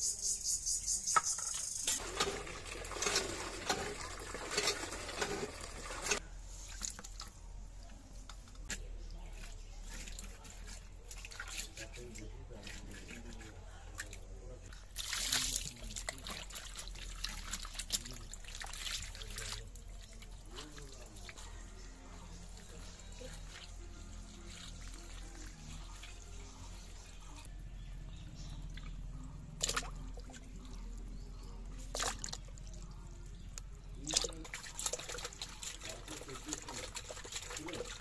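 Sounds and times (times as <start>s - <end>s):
water trickling and splashing: 1.4s - 8.2s, 8.8s - 27.5s, 28.3s - 38.0s
sharp water splashes: 14.9s - 19.7s.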